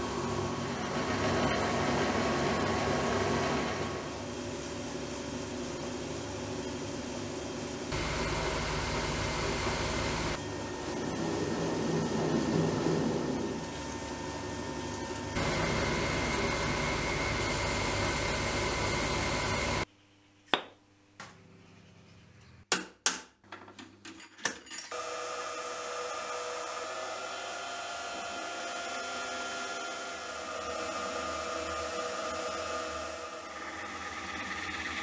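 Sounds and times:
metal lathe high whine: 0:14.2 - 0:19.9, 0:25.0 - 0:35.0
milling machine drilling: 0:25.0 - 0:35.0.

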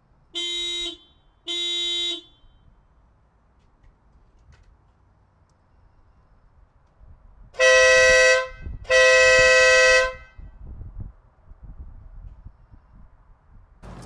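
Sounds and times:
dual-tone air horn blasts: 0:00.4 - 0:02.5, 0:07.6 - 0:10.6.

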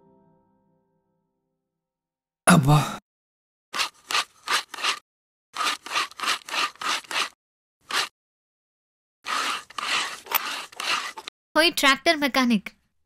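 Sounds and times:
metal hand tool scraping metal: 0:03.8 - 0:05.0, 0:05.6 - 0:08.1, 0:09.3 - 0:11.3.

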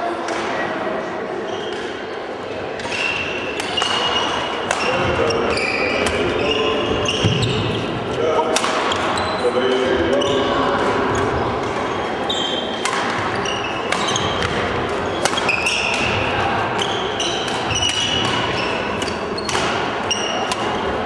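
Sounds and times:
rackets hitting shuttlecock: 0:02.8 - 0:06.5, 0:08.4 - 0:09.9, 0:12.6 - 0:21.0
shoes squeaking on wooden floor: 0:03.7 - 0:08.2, 0:08.9 - 0:11.4, 0:12.0 - 0:15.9.

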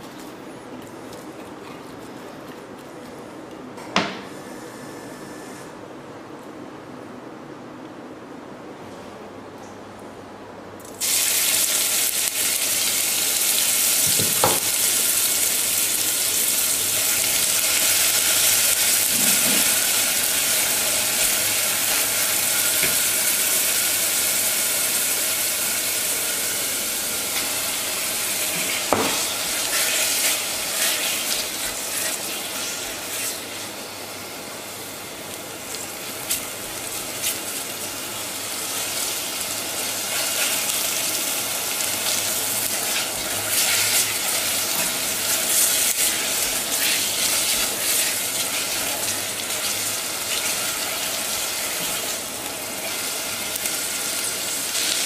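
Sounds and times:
herbs sizzling in hot oil: 0:11.0 - 0:55.0.

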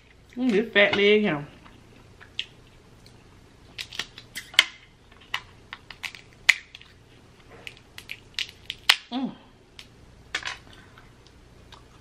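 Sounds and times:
crab shell cracking: 0:02.2 - 0:07.0, 0:07.6 - 0:09.1.

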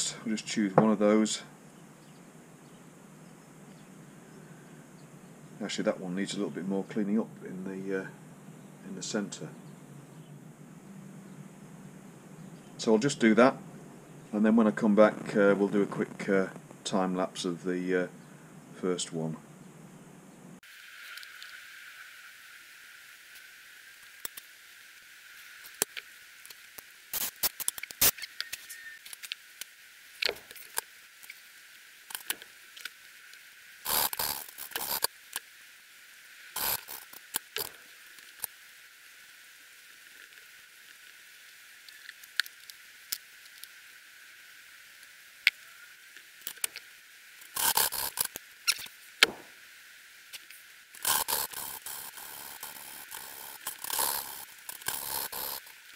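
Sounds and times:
gritty scraping of valve lapping: 0:51.0 - 0:55.8.

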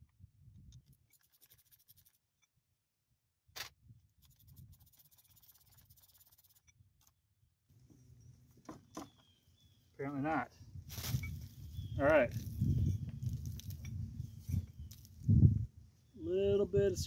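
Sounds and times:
scraping and rubbing of metal parts: 0:00.9 - 0:02.2, 0:04.2 - 0:06.7.

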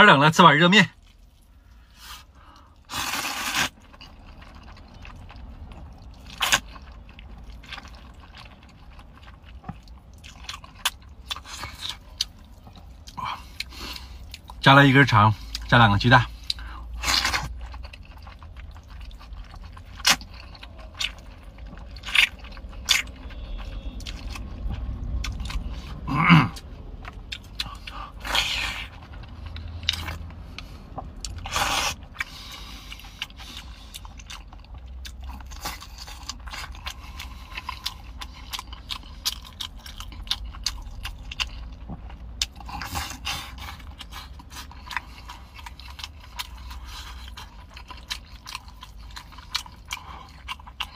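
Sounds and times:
noodles being slurped: 0:02.9 - 0:04.1.

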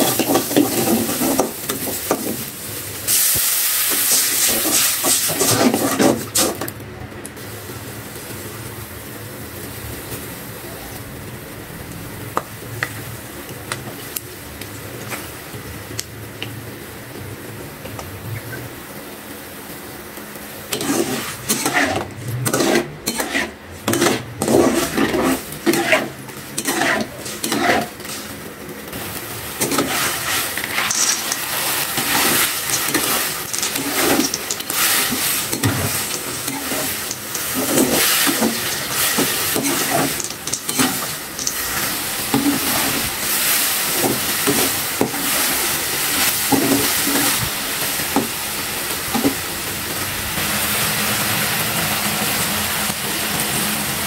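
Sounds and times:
sauce sizzling: 0:00.0 - 0:06.7, 0:07.3 - 0:54.0
metal spatula scraping a wok: 0:04.1 - 0:06.6, 0:20.7 - 0:28.3, 0:29.6 - 0:45.6.

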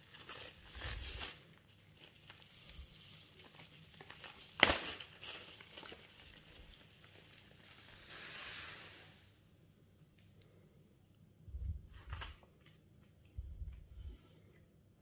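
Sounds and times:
bubble wrap snap: 0:00.0 - 0:09.2
bubble wrap crinkling: 0:00.0 - 0:09.4.

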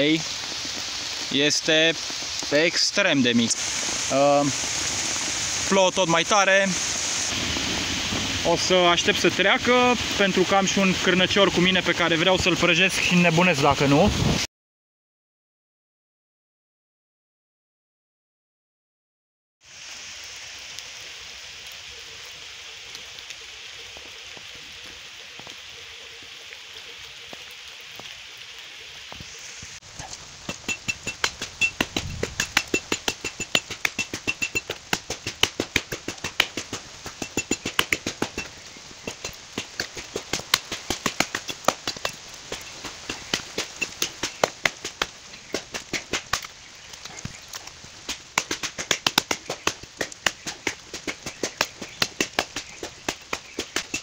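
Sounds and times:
rain on forest: 0:00.0 - 0:14.5, 0:19.6 - 0:54.0
machete chopping tree trunk: 0:30.5 - 0:38.4, 0:39.1 - 0:46.5, 0:48.1 - 0:54.0.

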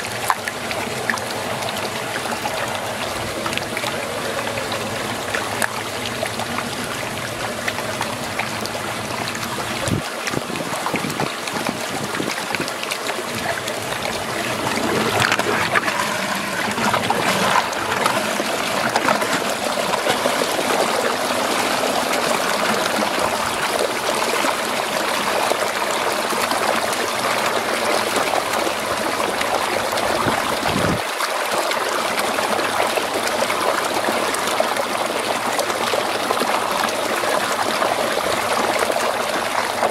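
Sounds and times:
water swirling down a drain: 0:00.0 - 0:39.9.

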